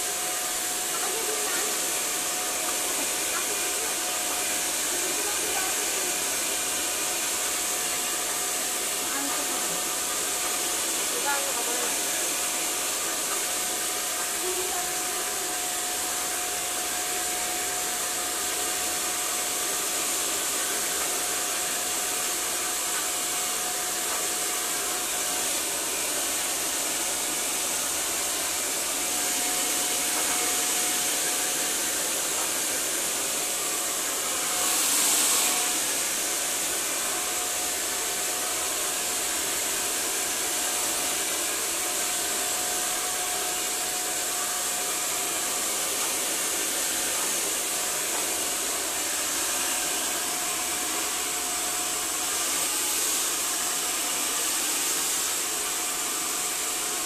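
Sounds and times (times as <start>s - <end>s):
hair dryer running: 0.0s - 57.0s.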